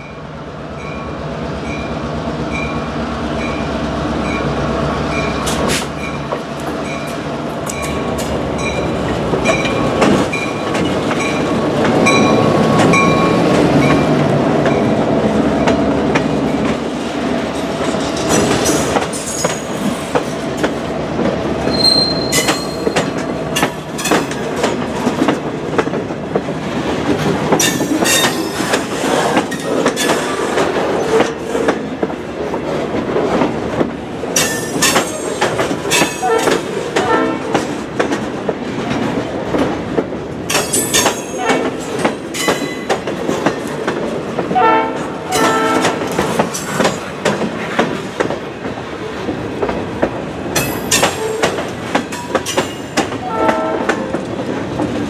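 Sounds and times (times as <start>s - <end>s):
train wheels rumbling on rail: 0.0s - 55.0s
wheels clacking over rail joints: 5.1s - 55.0s.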